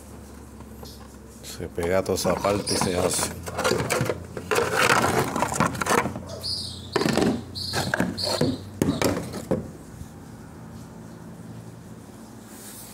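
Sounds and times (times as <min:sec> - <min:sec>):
resin pieces knocking and scraping: 0:01.8 - 0:06.3, 0:06.9 - 0:09.8
short high squeaks: 0:06.2 - 0:09.2.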